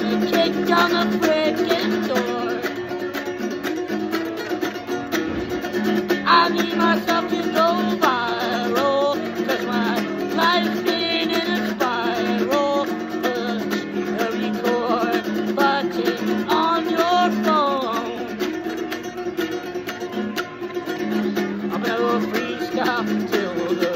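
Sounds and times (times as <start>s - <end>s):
man singing: 0.0s - 2.8s, 6.3s - 18.3s, 21.6s - 23.9s
acoustic guitar strumming: 0.0s - 23.9s.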